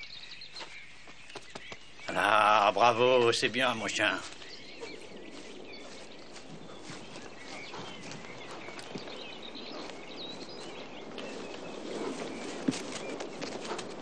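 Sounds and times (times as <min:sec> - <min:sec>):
birds chirping: 0:00.0 - 0:14.0
horse hoofbeats: 0:04.7 - 0:14.0.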